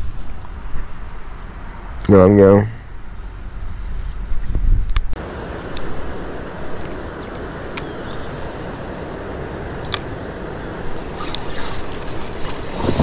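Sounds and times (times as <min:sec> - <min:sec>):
wind buffeting microphone: 0:03.6 - 0:13.0
water lapping against kayak: 0:10.9 - 0:13.0.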